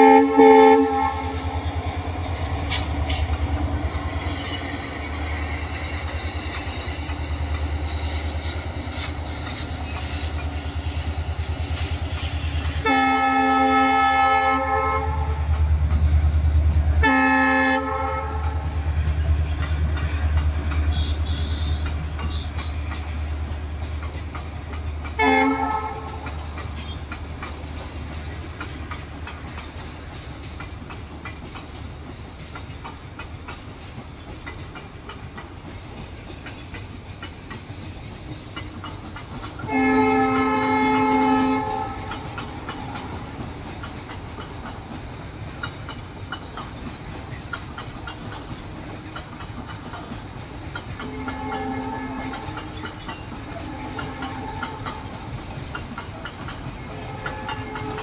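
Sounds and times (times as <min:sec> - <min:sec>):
train horn: 0:00.0 - 0:01.6, 0:12.7 - 0:15.5, 0:17.0 - 0:18.8, 0:20.9 - 0:22.9, 0:25.1 - 0:27.1, 0:39.6 - 0:42.3, 0:51.0 - 0:55.3, 0:56.8 - 0:58.0
train wagons rumbling past: 0:00.0 - 0:58.0
wheels clicking over rail joints: 0:00.0 - 0:58.0.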